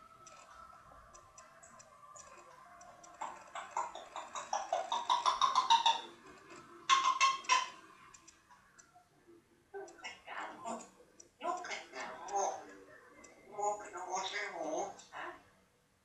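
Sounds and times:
parrot clicking calls: 0:00.2 - 0:08.9
parrot clicking and whistling: 0:01.1 - 0:08.9.

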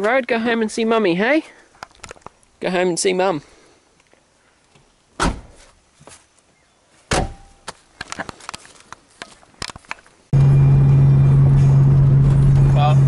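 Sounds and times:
car door shutting with a thud: 0:05.2 - 0:05.6, 0:07.1 - 0:07.4
clicks and knocks of handling: 0:07.7 - 0:10.1
engine and road drone inside car: 0:10.3 - 0:13.0.

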